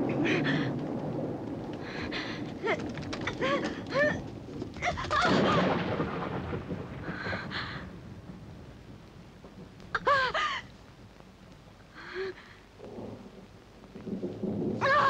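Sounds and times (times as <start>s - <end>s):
loud rumbling crash: 1.2s - 7.8s
woman crying out: 3.4s - 4.2s, 10.0s - 10.6s
woman gasping: 12.0s - 12.6s.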